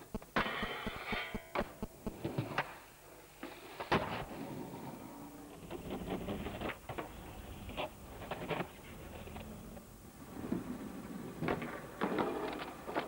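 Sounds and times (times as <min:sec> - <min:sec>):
skateboard wheels rolling: 0:02.2 - 0:13.0
skateboard clacking on ground: 0:10.4 - 0:13.0.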